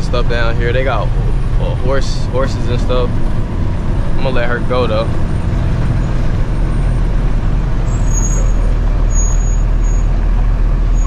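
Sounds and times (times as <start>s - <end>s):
truck diesel engine rumble: 0.0s - 11.0s
faint high-pitched squeals: 7.8s - 10.2s.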